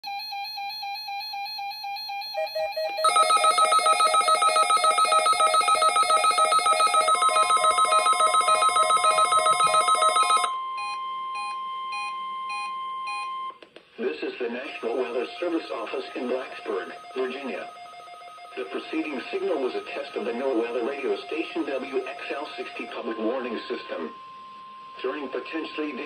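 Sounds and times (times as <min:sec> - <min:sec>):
steady alarm tone: 0:01.9 - 0:13.3, 0:14.8 - 0:26.0
pulsing electronic alarms: 0:14.8 - 0:26.0.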